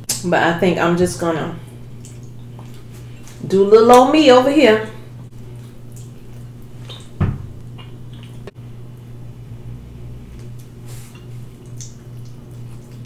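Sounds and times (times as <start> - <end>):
low hum: 0.0 - 13.0
mouth clicks and smacks: 6.8 - 8.5, 10.4 - 13.0.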